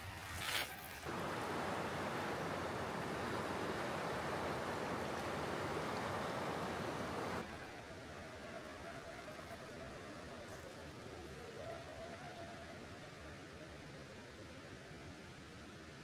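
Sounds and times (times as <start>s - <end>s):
river water rushing: 1.0s - 7.6s.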